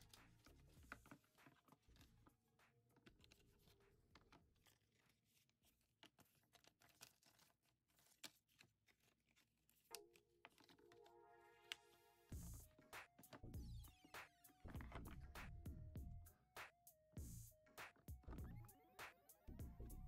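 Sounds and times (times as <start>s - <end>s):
paper and cardboard crinkling: 0.0s - 11.1s, 14.1s - 15.5s
soft music with held notes: 9.9s - 20.0s.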